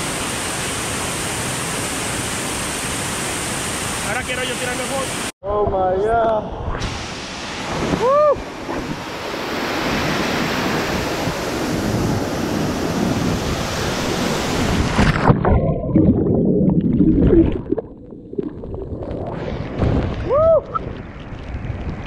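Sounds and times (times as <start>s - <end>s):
waterfall rushing and splashing: 0.0s - 5.3s, 7.0s - 15.2s
underwater bubbling and gurgling: 14.8s - 22.0s.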